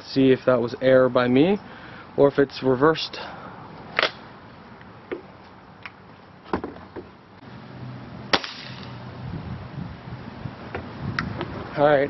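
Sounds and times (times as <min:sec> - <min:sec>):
air rifle shot: 0:08.3 - 0:09.0.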